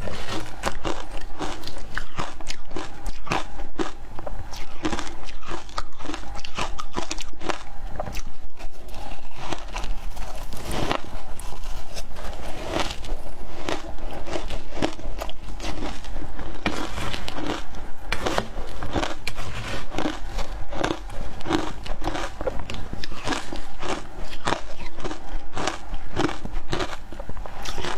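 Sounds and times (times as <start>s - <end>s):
ice crunching in the mouth: 4.6s - 27.9s.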